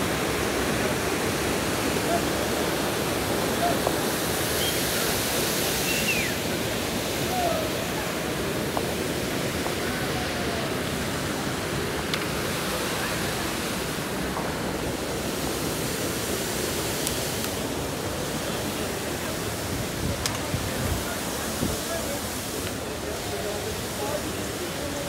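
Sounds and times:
water rushing in stream cascade: 0:00.0 - 0:25.0.

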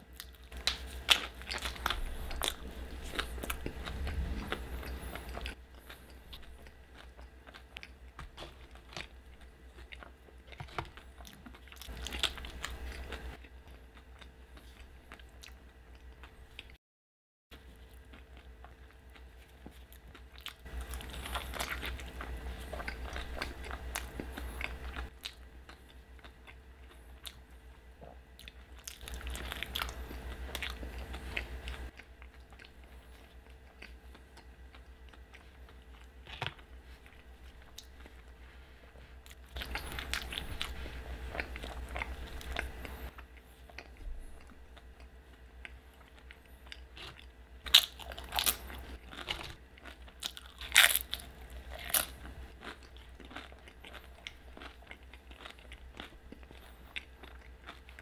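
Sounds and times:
wet chewing: 0:00.1 - 0:16.8, 0:17.6 - 0:38.4, 0:39.0 - 0:58.0.

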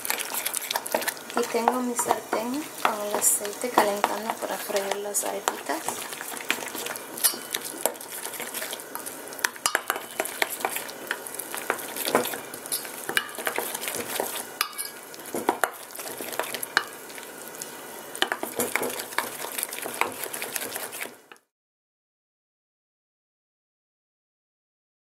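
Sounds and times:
spoon scraping wet batter: 0:00.0 - 0:17.0, 0:18.3 - 0:21.2
spoon clinking against metal bowl: 0:07.2 - 0:07.6, 0:09.6 - 0:10.2, 0:14.6 - 0:15.0.

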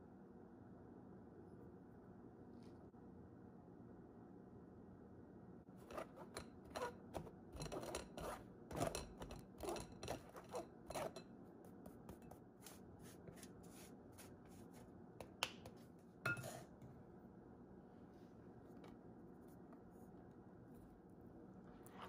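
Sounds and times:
spatula scraping mesh sieve: 0:05.8 - 0:11.2.

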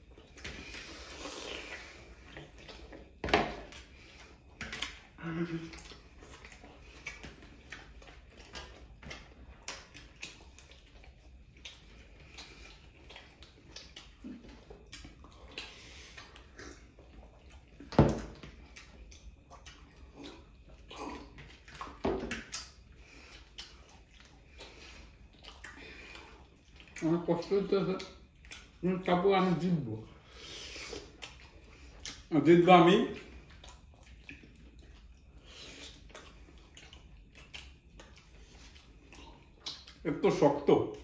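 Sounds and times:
chewing: 0:00.0 - 0:41.0
wet mouth smacks: 0:04.6 - 0:27.0, 0:30.9 - 0:32.3, 0:33.4 - 0:40.0
small mouth clicks: 0:33.5 - 0:40.0.

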